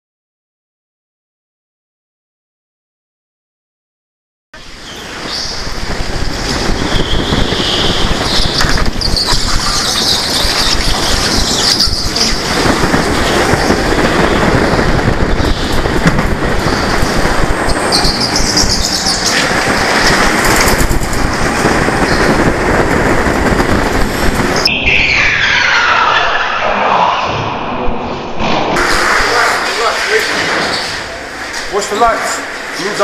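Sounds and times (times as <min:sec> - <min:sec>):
go-kart motors: 0:07.0 - 0:13.7.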